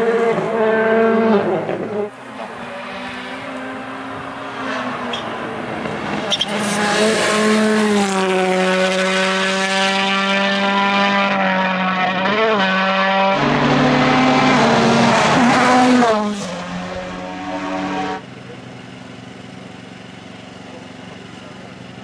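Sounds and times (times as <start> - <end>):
rally car engines at high revs: 0.0 - 22.0
steady engine-like tone: 16.7 - 22.0.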